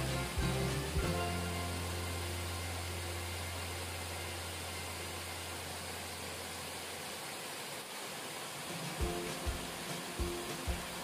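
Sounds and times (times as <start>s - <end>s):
low steady hum: 0.0s - 7.2s.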